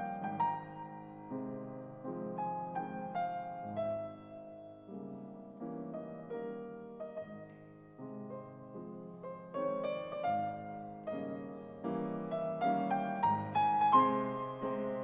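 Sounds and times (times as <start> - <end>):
grand piano playing classical music: 0.0 - 15.0.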